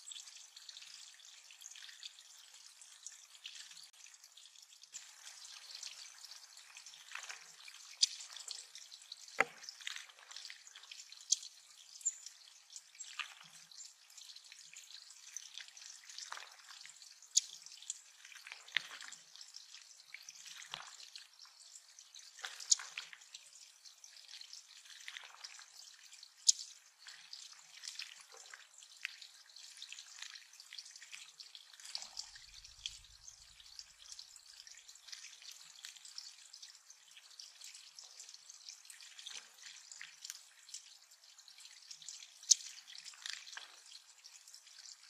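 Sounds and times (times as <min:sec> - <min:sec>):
drips and small splashes: 0:00.0 - 0:45.0
water trickling over stones: 0:00.0 - 0:45.0.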